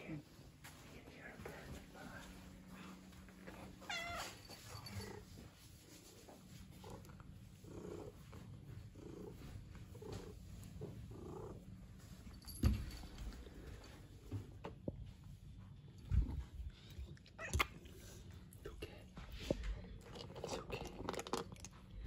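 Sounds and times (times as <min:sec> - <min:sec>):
cat meowing: 0:03.8 - 0:04.4.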